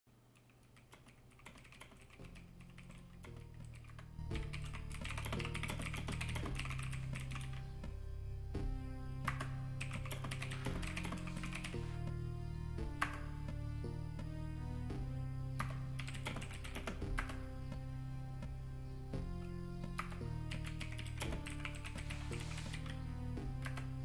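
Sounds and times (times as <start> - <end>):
typing on computer keyboard: 0.3 - 7.6, 9.8 - 11.8, 16.0 - 17.3, 20.0 - 22.9
music with low sustained notes: 1.4 - 24.0.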